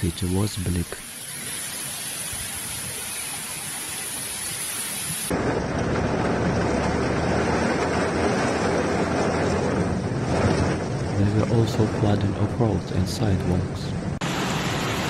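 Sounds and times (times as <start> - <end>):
heavy rain hissing: 0.0 - 5.4, 14.2 - 15.0
floodwater rushing down street: 0.0 - 13.6, 14.2 - 15.0.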